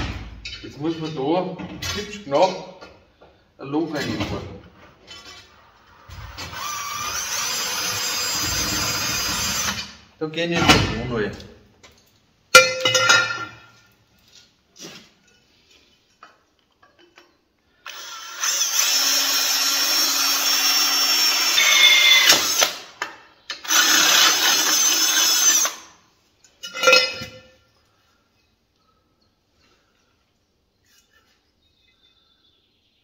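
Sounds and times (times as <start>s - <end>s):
cordless drill boring metal: 6.0s - 9.9s, 17.8s - 22.8s, 23.5s - 25.9s.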